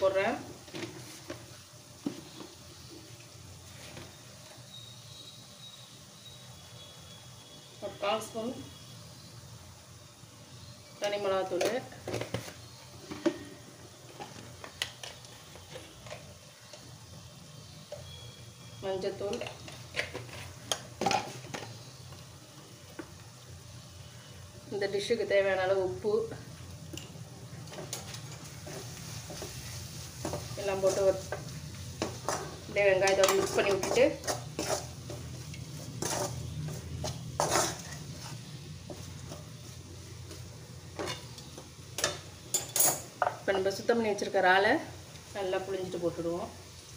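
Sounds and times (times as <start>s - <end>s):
onions sizzling faintly: 0.0s - 46.9s
spoon stirring in metal pan: 26.9s - 43.4s
sharp scrapes against pan: 33.2s - 38.5s.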